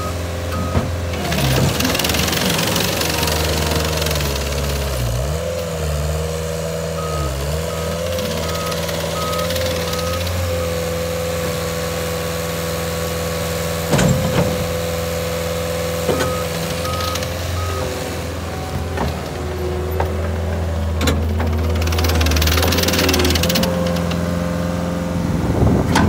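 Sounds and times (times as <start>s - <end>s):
diesel engine running with whine: 0.0s - 26.0s.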